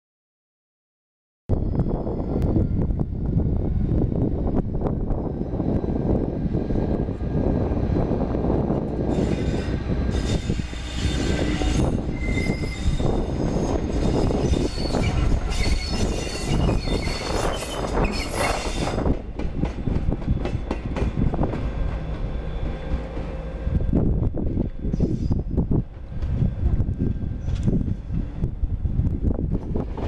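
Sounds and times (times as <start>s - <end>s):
diesel locomotive engine rumbling: 1.5s - 30.0s
wheels squealing and clicking on rails: 8.4s - 30.0s.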